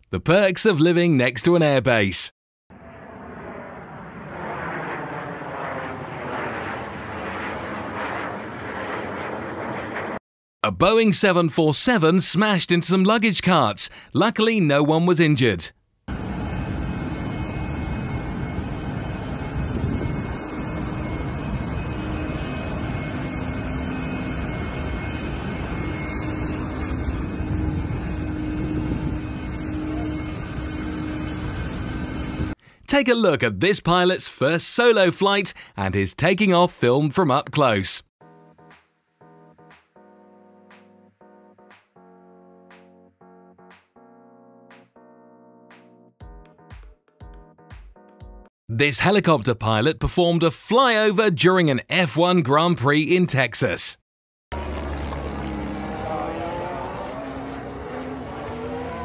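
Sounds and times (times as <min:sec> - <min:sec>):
fighter jet flying overhead: 0:02.7 - 0:10.2, 0:16.1 - 0:32.6, 0:54.5 - 0:59.0.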